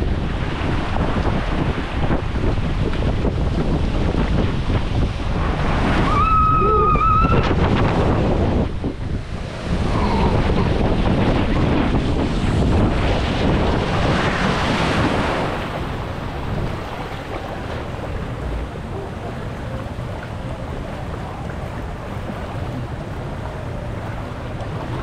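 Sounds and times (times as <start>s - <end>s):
rushing water: 0.0s - 25.0s
wind buffeting microphone: 0.0s - 25.0s.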